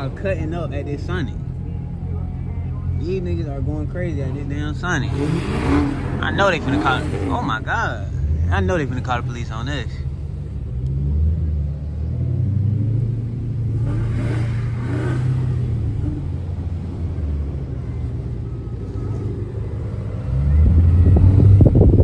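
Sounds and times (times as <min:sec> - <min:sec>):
engine revving: 0:03.5 - 0:22.0
car exhausts rumbling at idle: 0:13.1 - 0:22.0.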